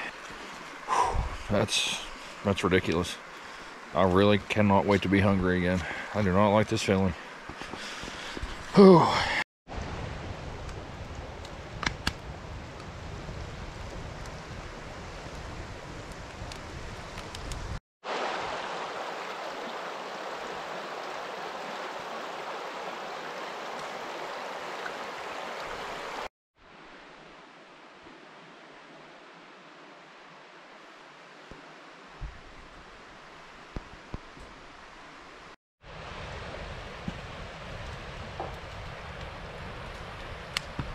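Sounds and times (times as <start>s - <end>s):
campfire pops: 10.6s - 12.9s, 37.8s - 40.9s
creek rushing over rocks: 18.0s - 26.3s.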